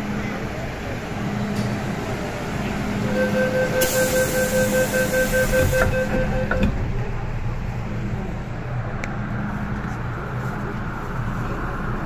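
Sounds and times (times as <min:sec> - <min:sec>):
train background noise: 0:00.0 - 0:12.0
two-pitch door warning beeps: 0:03.0 - 0:06.8
train doors knocking shut: 0:03.6 - 0:07.0.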